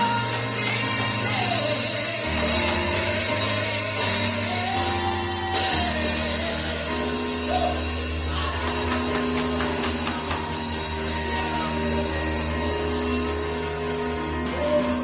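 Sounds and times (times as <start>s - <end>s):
gospel music: 0.0s - 15.0s.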